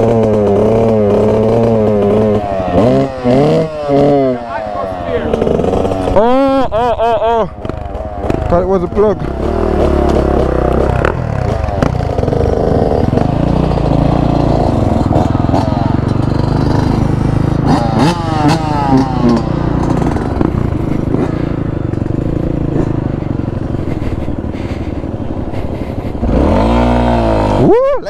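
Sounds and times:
motorcycle engine revving: 0:00.0 - 0:28.0
bike rattling over rough ground: 0:07.5 - 0:26.9.

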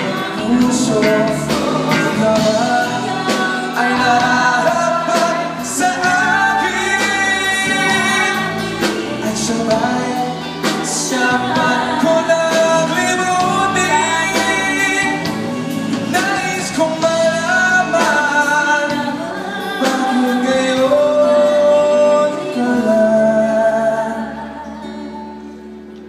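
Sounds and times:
male singer: 0:00.0 - 0:25.2
drums: 0:00.0 - 0:26.0
keyboards: 0:00.0 - 0:26.0
female singer: 0:17.8 - 0:25.7.

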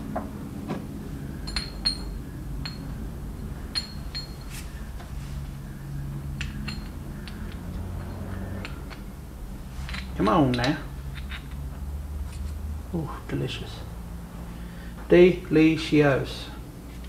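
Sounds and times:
small steel parts clinking: 0:01.4 - 0:03.0, 0:03.7 - 0:04.7, 0:06.4 - 0:09.1, 0:09.8 - 0:12.6.

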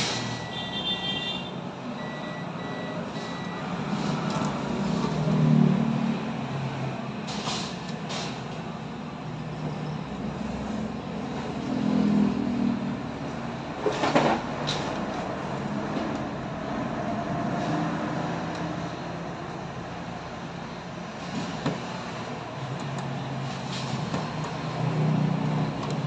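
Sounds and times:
high electronic beeps: 0:02.0 - 0:03.7.

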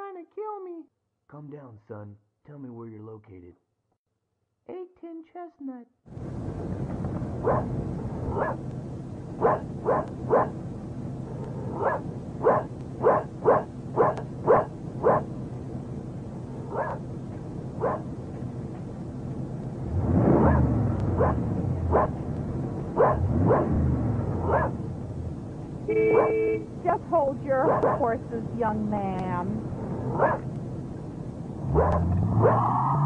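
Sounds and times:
steady low rumble: 0:06.1 - 0:32.5
dog barking: 0:07.4 - 0:07.7, 0:08.3 - 0:08.6, 0:09.4 - 0:10.6, 0:11.3 - 0:15.3, 0:16.6 - 0:17.0, 0:17.8 - 0:18.1, 0:20.4 - 0:22.2, 0:23.0 - 0:23.8, 0:24.4 - 0:24.8, 0:26.0 - 0:26.6, 0:27.6 - 0:28.1, 0:30.1 - 0:30.5, 0:31.7 - 0:32.6.

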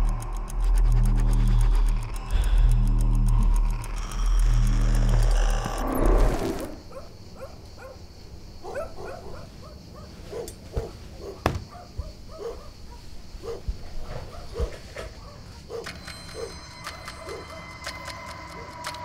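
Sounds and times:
music: 0:00.0 - 0:06.8, 0:15.8 - 0:19.0
dog barking faintly: 0:08.6 - 0:16.5.

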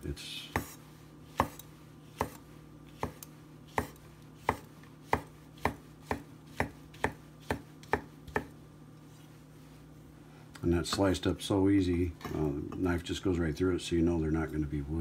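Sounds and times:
knife slicing on wooden board: 0:03.0 - 0:08.5.

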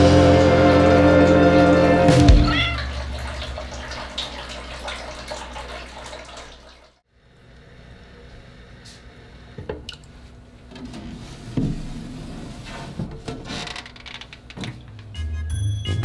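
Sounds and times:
music: 0:00.0 - 0:02.6, 0:15.0 - 0:16.0
tap water trickling into container: 0:02.5 - 0:07.0.

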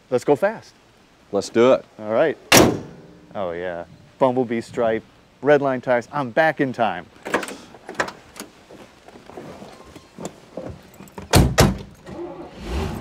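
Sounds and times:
car doors thudding shut: 0:02.5 - 0:03.0, 0:11.2 - 0:12.0.

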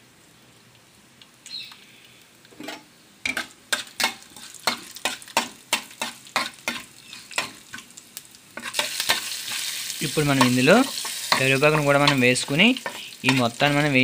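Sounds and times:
spices sizzling in oil: 0:00.3 - 0:14.0
metal spatula scraping a pan: 0:08.6 - 0:14.0.

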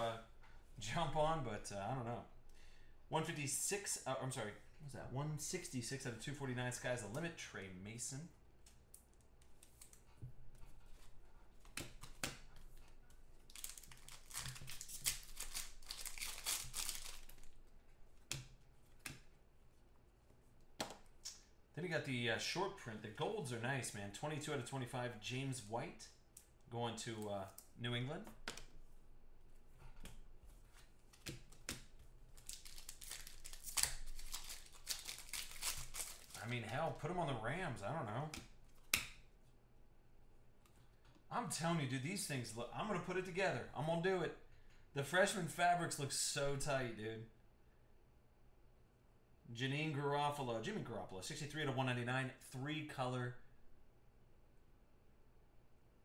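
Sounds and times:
foil wrapper tearing and crinkling: 0:13.5 - 0:17.6, 0:32.3 - 0:36.4.

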